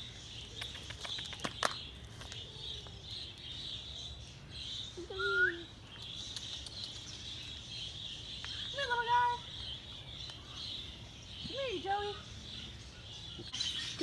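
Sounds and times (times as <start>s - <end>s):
birds chirping: 0.0s - 14.0s
sharp clicks: 6.0s - 7.3s.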